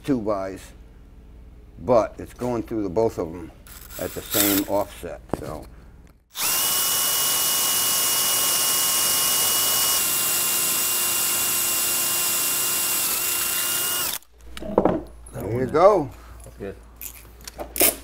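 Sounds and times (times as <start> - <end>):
cordless drill boring wood: 6.3 - 14.3.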